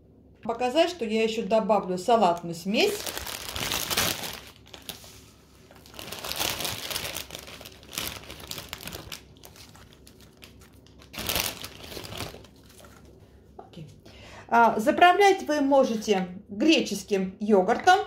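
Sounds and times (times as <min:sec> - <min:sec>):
plastic bag crinkling: 0:02.3 - 0:13.2.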